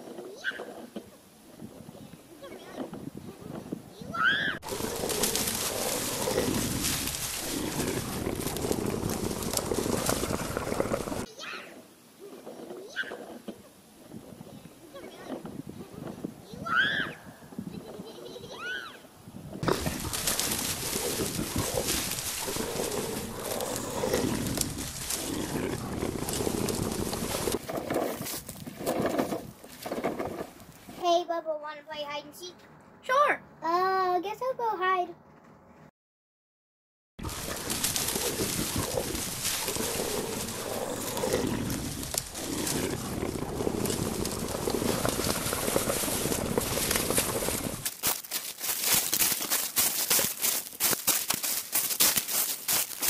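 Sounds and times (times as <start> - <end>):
dry leaves crunching: 4.6 - 11.3, 19.6 - 27.6, 37.2 - 53.0
low animal growling: 4.6 - 11.3, 19.6 - 27.6, 37.2 - 47.9.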